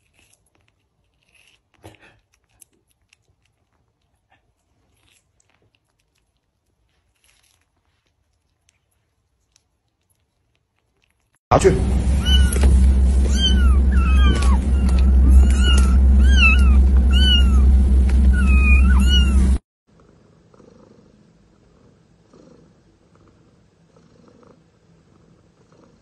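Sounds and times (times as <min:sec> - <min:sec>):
low rumble of moving car: 0:11.5 - 0:19.6
kittens meowing: 0:12.2 - 0:12.6, 0:13.2 - 0:17.7, 0:18.3 - 0:19.5
cat purring faintly: 0:18.3 - 0:26.0.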